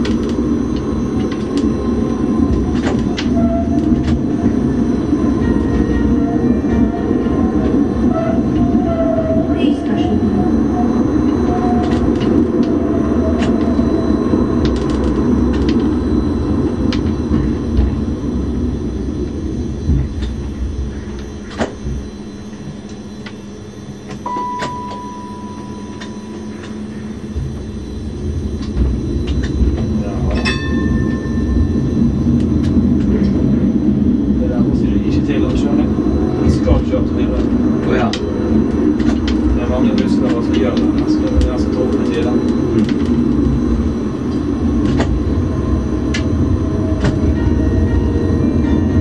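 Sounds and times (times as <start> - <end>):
tram wheels rumbling on rail: 0.0 - 49.0
ringing tone: 22.1 - 32.4
short steady beep: 24.2 - 27.1.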